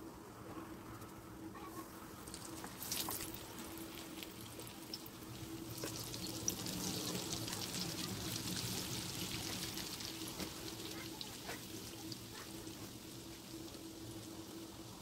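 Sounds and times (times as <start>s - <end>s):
faint steady hum: 0.0s - 15.0s
dough sizzling in hot oil: 2.2s - 15.0s.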